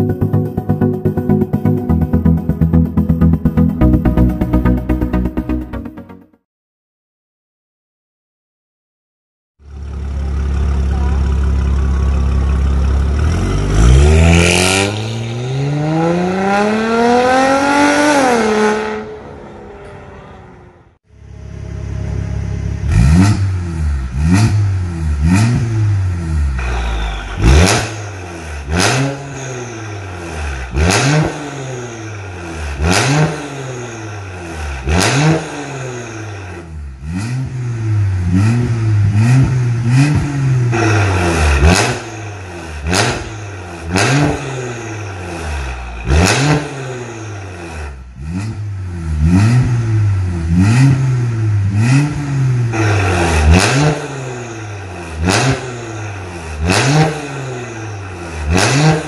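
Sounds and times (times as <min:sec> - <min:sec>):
car engine idling: 0:09.6 - 0:13.8, 0:21.1 - 0:30.8
car engine revving: 0:09.6 - 0:59.0.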